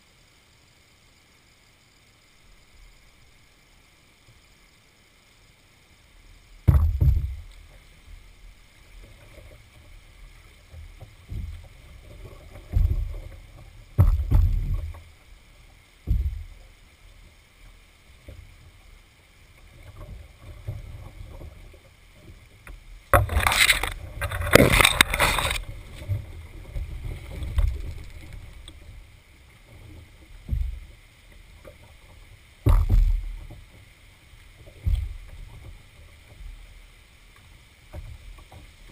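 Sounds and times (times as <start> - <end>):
soft water sounds: 0.0 - 38.9
paddle knocking on canoe hull: 6.6 - 7.6, 10.6 - 15.1, 16.0 - 16.7, 32.6 - 33.7
scraping and splashing: 8.9 - 15.4, 19.6 - 33.8.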